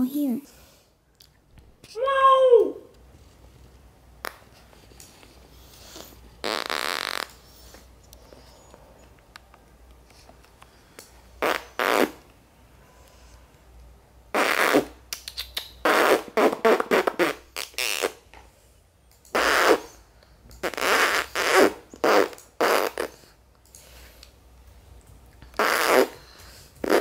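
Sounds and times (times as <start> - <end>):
fake fart noises: 6.0 - 7.5, 11.4 - 12.2, 14.3 - 15.1, 15.8 - 18.2, 19.3 - 20.0, 20.6 - 23.3, 25.5 - 27.0.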